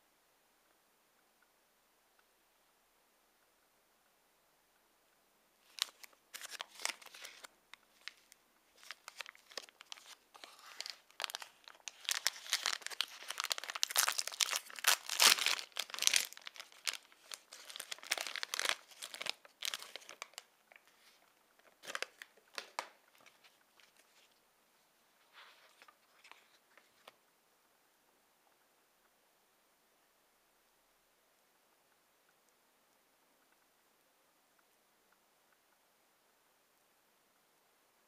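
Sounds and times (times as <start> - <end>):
plastic wrapper crinkling: 5.6 - 24.4.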